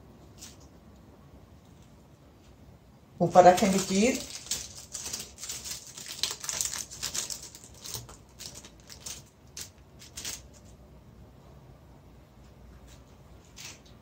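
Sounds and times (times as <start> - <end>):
plastic wrapper crinkling: 3.2 - 10.8.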